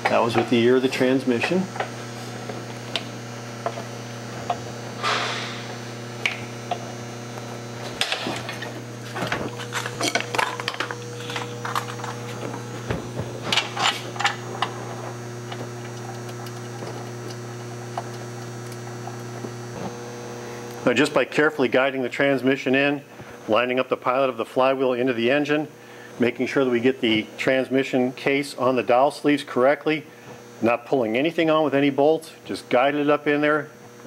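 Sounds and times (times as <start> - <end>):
steady electrical hum: 0.0 - 34.0
metal scrape: 5.0 - 5.7.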